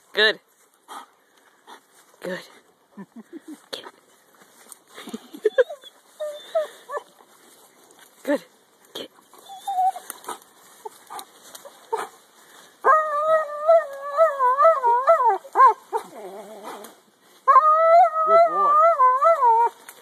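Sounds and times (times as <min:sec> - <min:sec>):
dog whining: 0:09.4 - 0:10.1.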